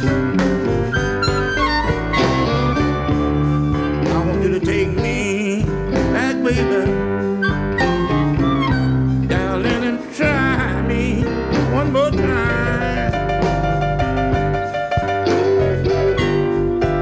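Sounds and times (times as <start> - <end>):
harmonica solo: 0.0 - 4.1, 7.2 - 9.3, 15.3 - 17.0
electric blues band playing: 0.0 - 17.0.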